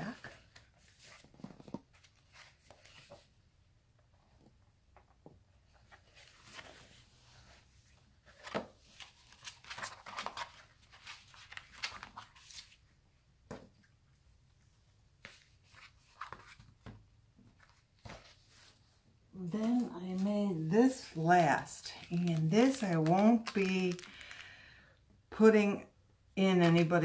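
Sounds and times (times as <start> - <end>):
paper pages rustling and flipping: 0.1 - 3.3, 5.7 - 12.9, 15.2 - 17.0, 17.6 - 18.9, 19.6 - 24.5, 26.5 - 26.9.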